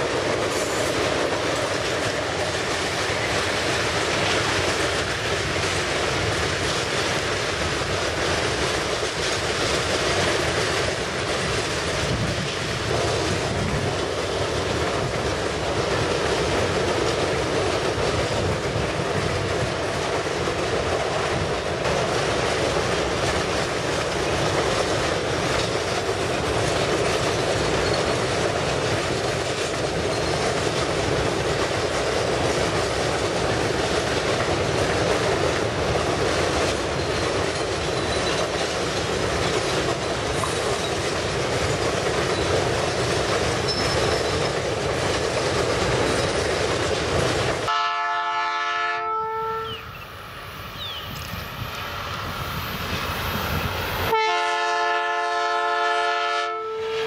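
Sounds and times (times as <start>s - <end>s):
freight wagons rumbling on rails: 0.0s - 48.8s, 49.6s - 56.6s
distant locomotive air horn: 47.7s - 49.9s, 54.1s - 57.0s.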